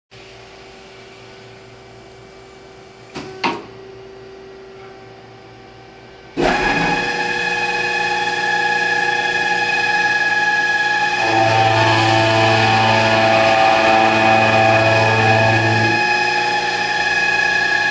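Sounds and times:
machining whine: 0:00.3 - 0:17.9
machine humming: 0:03.8 - 0:17.9.

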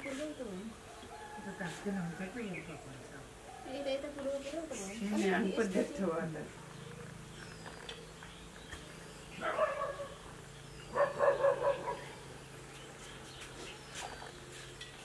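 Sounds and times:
dog barking: 0:09.4 - 0:10.2, 0:10.9 - 0:12.1.

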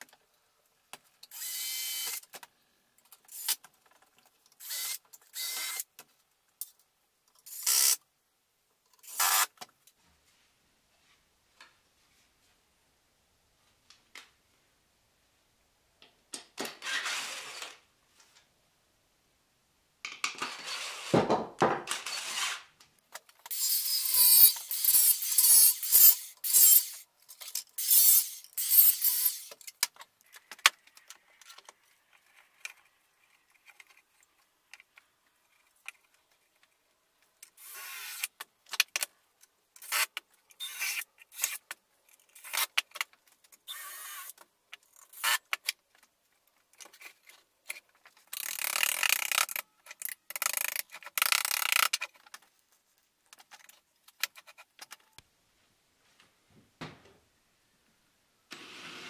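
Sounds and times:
workshop tool noises: 0:20.2 - 0:29.8
angle grinder cutting steel: 0:23.6 - 0:27.0.

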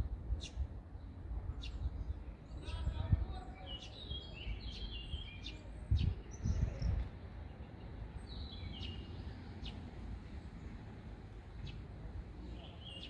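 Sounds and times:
outdoor background noise: 0:00.0 - 0:13.0
small birds chirping: 0:00.4 - 0:13.0
low rumbling on microphone: 0:05.0 - 0:07.1.

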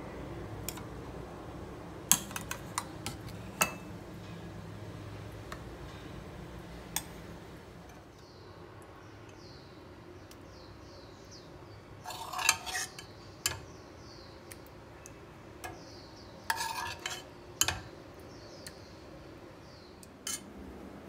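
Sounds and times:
spoon scraping on pan and plate: 0:02.1 - 0:03.9, 0:12.0 - 0:13.6, 0:15.6 - 0:17.9, 0:20.2 - 0:20.5.

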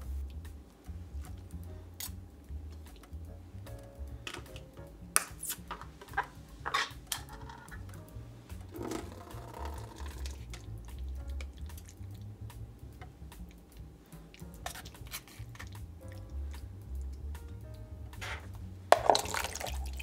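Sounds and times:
soft background music with bass: 0:00.0 - 0:20.0
spoon and tin cans clinking: 0:18.3 - 0:20.0.

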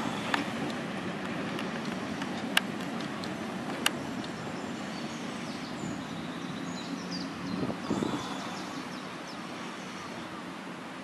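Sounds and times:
small birds chirping: 0:03.2 - 0:10.3.

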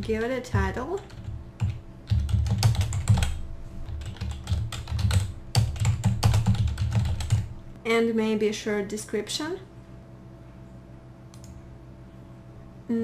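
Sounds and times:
typing on computer keyboard: 0:00.9 - 0:07.5.

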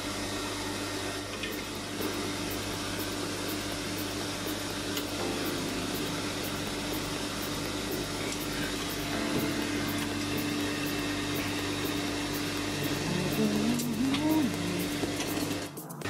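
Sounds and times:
machinery hum: 0:00.0 - 0:16.0.

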